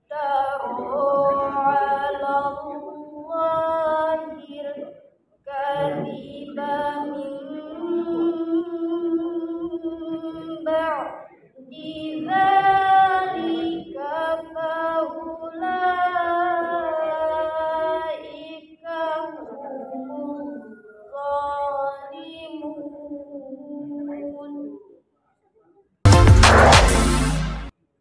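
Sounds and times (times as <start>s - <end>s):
woman chanting: 0.0s - 25.0s.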